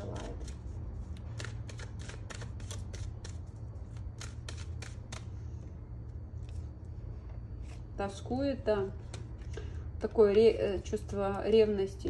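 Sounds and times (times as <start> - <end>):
cards being shuffled: 0.0 - 5.4.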